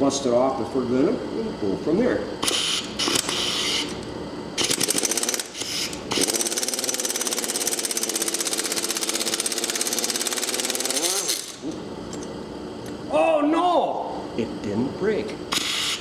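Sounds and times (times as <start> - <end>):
impact wrench hammering: 4.6 - 11.7.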